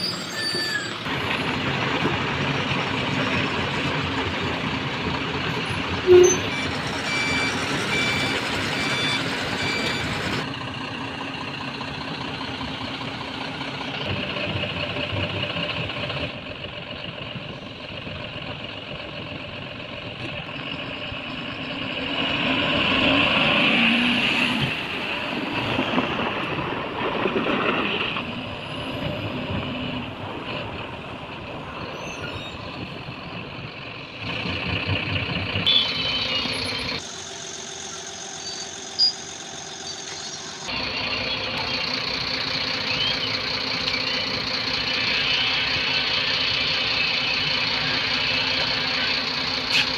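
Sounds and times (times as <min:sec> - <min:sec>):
diesel truck engine running: 0:00.0 - 0:49.9
repeating electronic beep: 0:06.1 - 0:10.2, 0:35.7 - 0:42.0.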